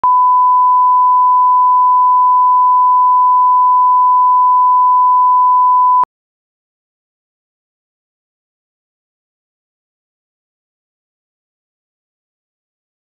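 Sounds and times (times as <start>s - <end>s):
loud pure test tone beep: 0.0s - 6.1s.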